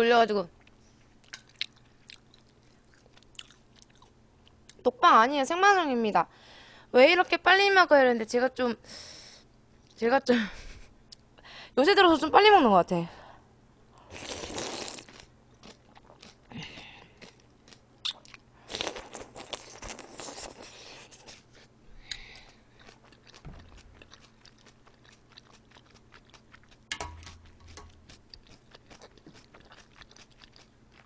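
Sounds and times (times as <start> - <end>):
broth sipping: 14.0 - 15.2
noodles chewed: 15.6 - 31.0
small mouth clicks: 18.0 - 20.6.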